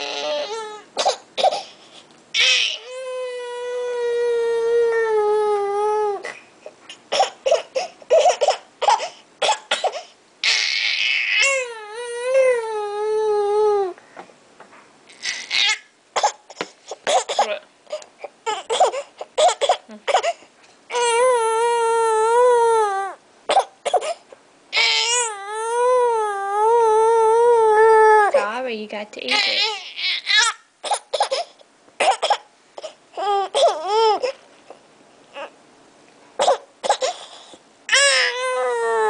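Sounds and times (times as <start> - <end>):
infant crying: 0.0 - 1.7, 2.4 - 6.4, 9.9 - 14.0, 15.1 - 28.5, 29.3 - 34.4, 35.3 - 35.6, 36.4 - 39.0
baby sobbing: 0.0 - 9.2, 9.8 - 14.0, 15.1 - 28.5, 29.3 - 34.4, 35.3 - 35.6, 36.4 - 39.0.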